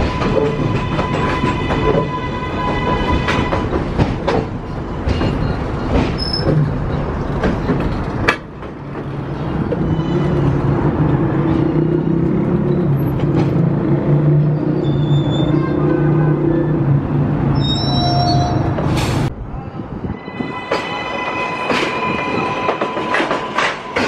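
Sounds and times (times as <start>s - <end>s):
train wheels clacking over rail joints: 0.0s - 9.9s.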